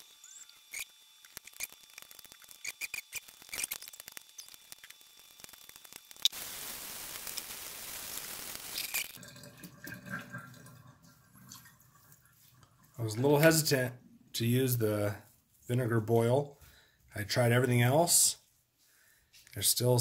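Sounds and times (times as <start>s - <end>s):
water running into sink: 8.8s - 13.0s.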